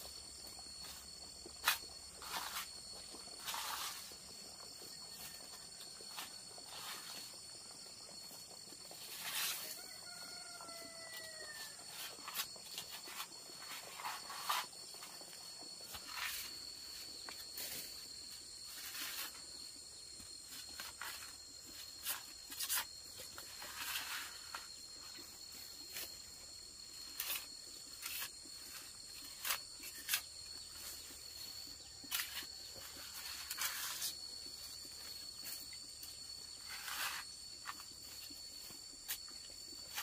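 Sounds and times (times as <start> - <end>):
rustling and scraping: 0.0 - 7.8, 8.6 - 40.0
high-pitched insect drone: 0.0 - 40.0.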